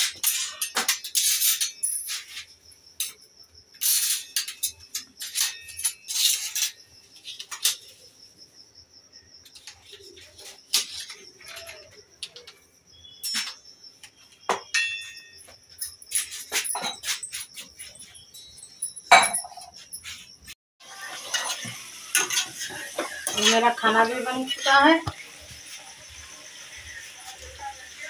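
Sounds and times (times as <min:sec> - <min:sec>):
steel utensils clinking and scraping: 0:00.0 - 0:08.0, 0:09.5 - 0:12.6, 0:13.2 - 0:13.6, 0:14.7 - 0:25.2.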